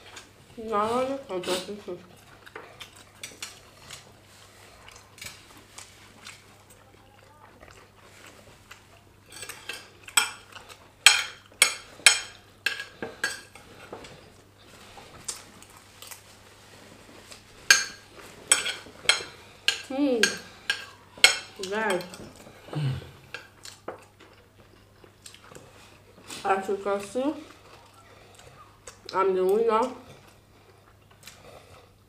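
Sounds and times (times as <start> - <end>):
cutlery clinking on plates: 9.3 - 14.1, 17.7 - 22.4.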